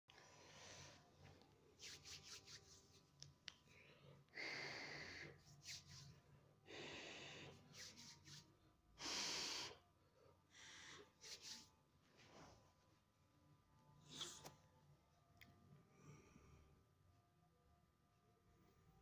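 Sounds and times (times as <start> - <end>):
soft breathing: 0.1 - 1.6.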